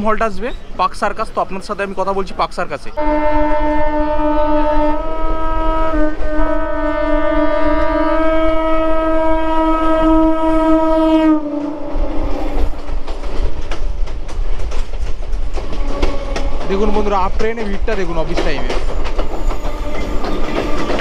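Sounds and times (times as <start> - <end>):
train air horn blast: 3.0 - 12.8, 15.7 - 16.8, 19.6 - 21.0
train wheels clattering on rails: 11.6 - 21.0.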